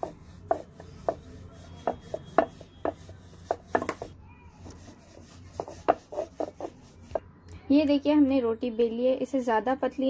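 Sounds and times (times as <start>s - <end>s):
rolling pin rubbing dough: 0.0s - 7.3s.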